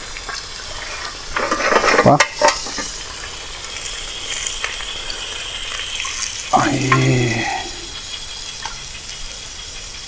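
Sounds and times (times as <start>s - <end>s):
fish sizzling in hot oil: 0.0s - 10.0s
utensil scraping and knocking pan: 1.4s - 2.9s.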